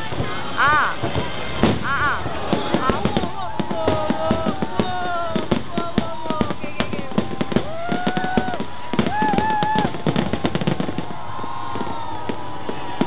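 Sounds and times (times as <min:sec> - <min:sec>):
fireworks pops and crackles: 0:00.0 - 0:13.0.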